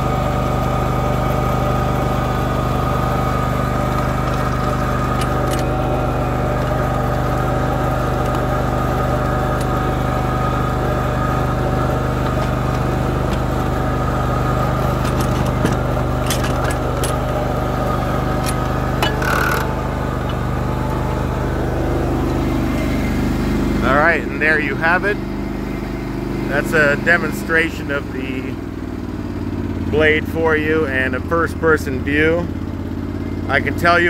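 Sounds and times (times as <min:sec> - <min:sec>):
tractor engine running: 0:00.0 - 0:34.0
steady high tone: 0:18.4 - 0:28.5.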